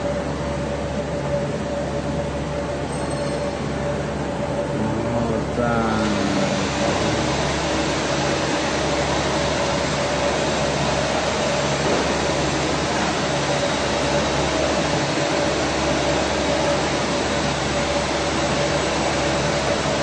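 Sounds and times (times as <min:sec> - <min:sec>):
industrial machinery hiss and hum: 0:00.0 - 0:20.0.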